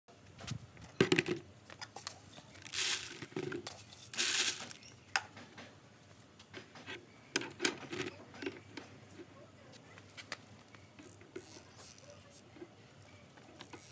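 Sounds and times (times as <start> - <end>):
dry grain poured into plastic bucket: 2.5 - 4.8.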